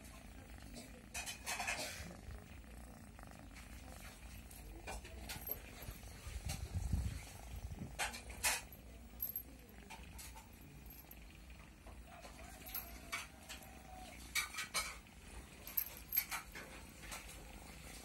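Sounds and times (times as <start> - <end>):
cat purring: 0.0 - 18.0
handling rustles and clicks: 3.8 - 18.0.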